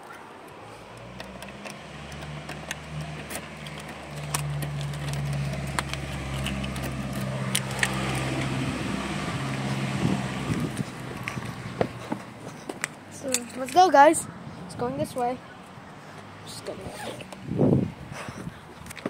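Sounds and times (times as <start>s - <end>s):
van engine humming: 0.0s - 18.8s
sharp clicks: 0.5s - 8.5s.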